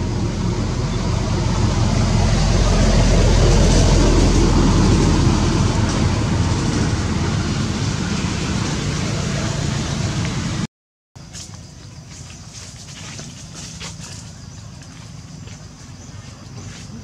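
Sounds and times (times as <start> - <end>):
loud steady rumble with hiss: 0.0 - 10.7.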